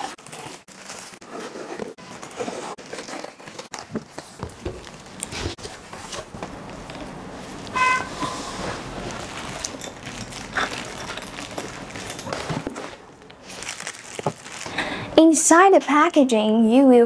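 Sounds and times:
plastic wrap crinkling and tearing: 0.0s - 5.5s, 8.9s - 14.8s.

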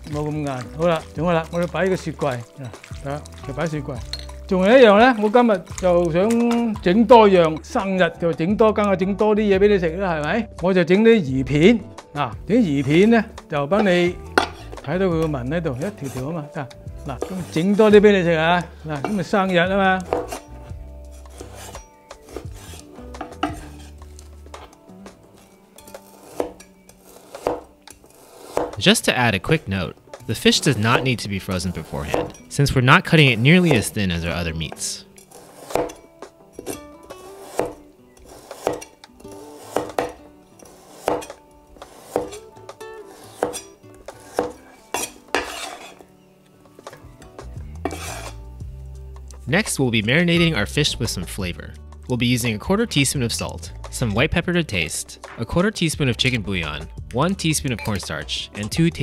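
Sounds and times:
blade scraping across board: 17.2s - 17.8s, 20.0s - 24.7s, 25.3s - 28.8s, 35.2s - 46.1s, 47.7s - 48.4s.

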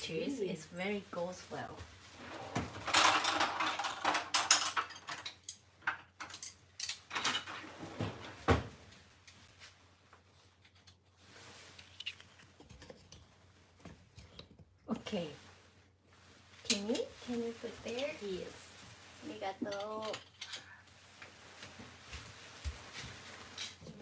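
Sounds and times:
kitchen utensils clattering: 2.2s - 8.3s, 19.2s - 20.8s.

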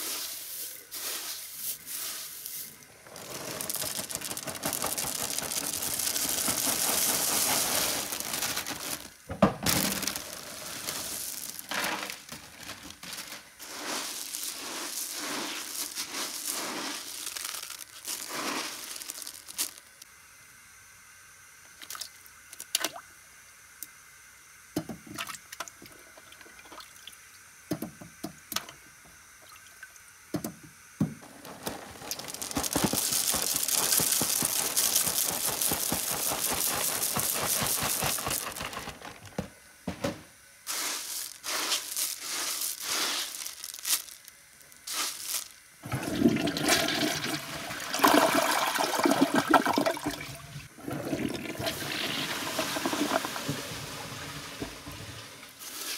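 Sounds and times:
cereal pouring into bowl: 0.0s - 20.0s, 31.2s - 39.4s, 40.7s - 55.9s
toilet flushing: 45.8s - 55.6s.

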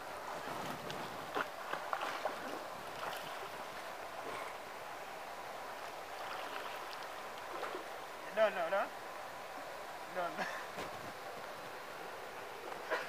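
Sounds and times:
swimmer splashing: 0.0s - 4.6s, 5.8s - 8.0s
water lapping: 0.3s - 4.7s, 5.7s - 8.6s.

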